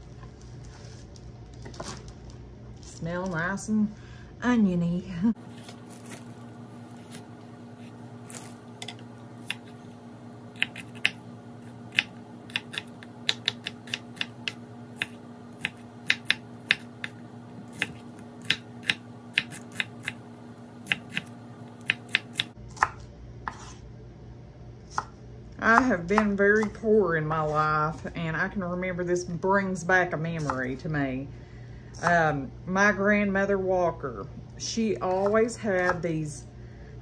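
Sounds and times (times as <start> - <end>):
steady low hum: 0.0 - 37.0
knife chopping on wooden board: 7.8 - 9.8, 10.6 - 20.2, 20.8 - 23.8, 24.9 - 26.8.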